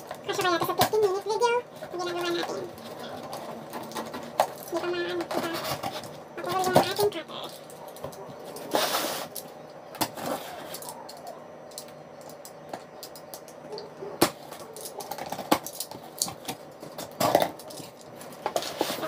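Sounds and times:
box cutter scraping through tape: 8.6 - 9.4.

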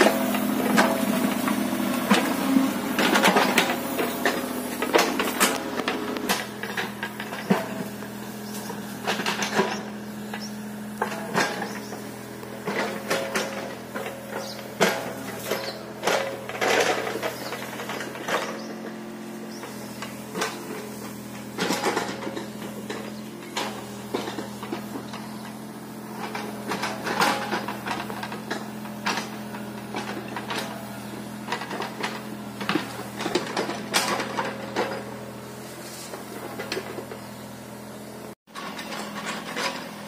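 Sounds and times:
excavator diesel engine humming: 0.0 - 40.0
clattering and scraping: 12.6 - 19.0.

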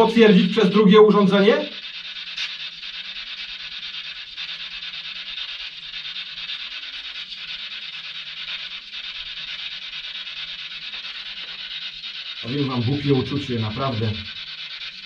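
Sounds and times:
radio static sweeping stations: 0.0 - 3.2, 10.2 - 15.0.

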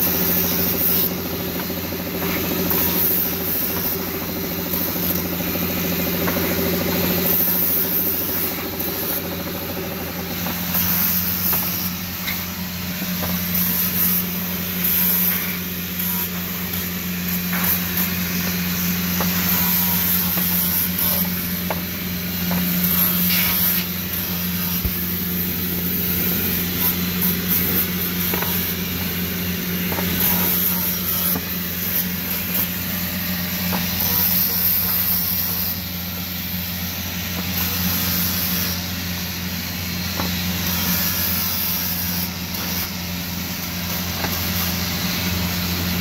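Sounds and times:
motor humming: 0.0 - 36.3.

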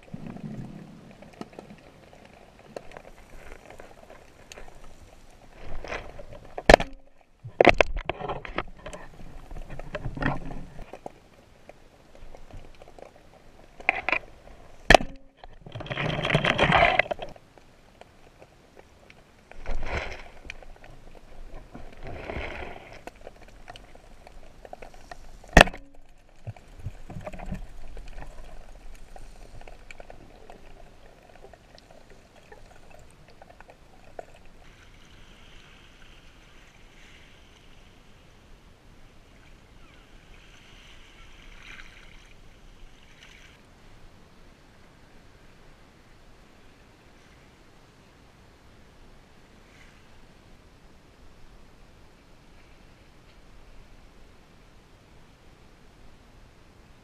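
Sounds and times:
underwater water rushing: 0.0 - 11.4, 19.4 - 37.3.

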